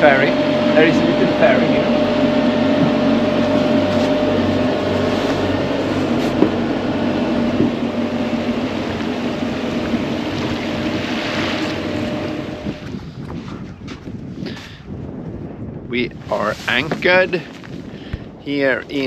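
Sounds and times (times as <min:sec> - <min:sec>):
thin high whine: 0:00.0 - 0:13.1
diesel engine hum: 0:00.0 - 0:13.2
water rushing along hull: 0:00.0 - 0:13.9.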